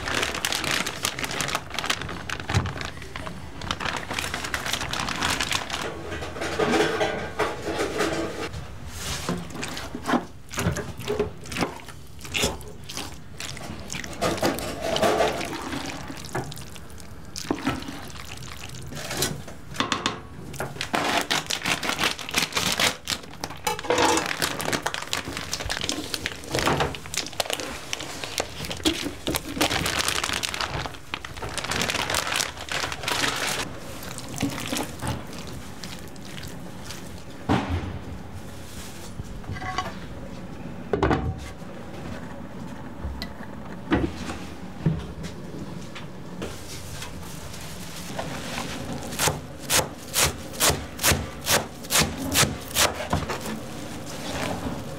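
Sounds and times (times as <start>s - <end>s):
plastic bag rustling: 0.0s - 7.0s, 20.7s - 37.5s, 46.5s - 54.9s.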